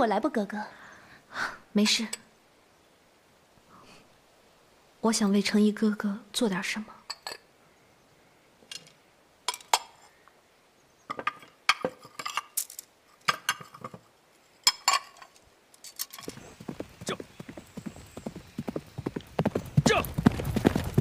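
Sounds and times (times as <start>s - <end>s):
dishes and cups clinking: 7.1s - 7.5s, 11.1s - 14.0s, 14.6s - 15.4s
horse hoofbeats: 16.2s - 21.0s.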